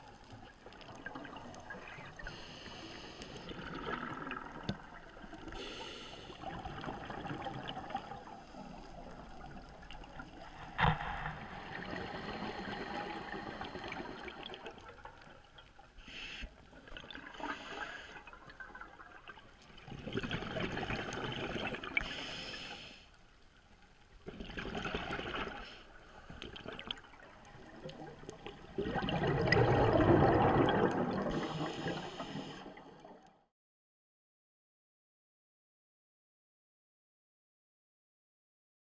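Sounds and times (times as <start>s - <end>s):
scuba exhale bubbling underwater: 0.7s - 15.1s, 16.8s - 22.5s, 24.3s - 33.2s.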